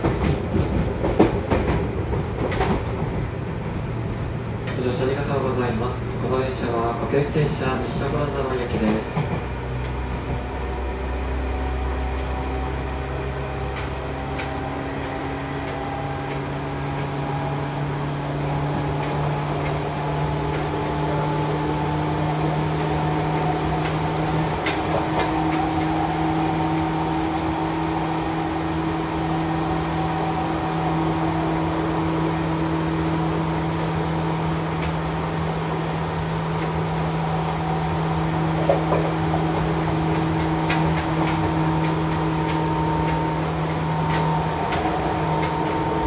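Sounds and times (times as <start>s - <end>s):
train rolling noise: 0.0s - 46.0s
electric train motor whine: 9.6s - 46.0s.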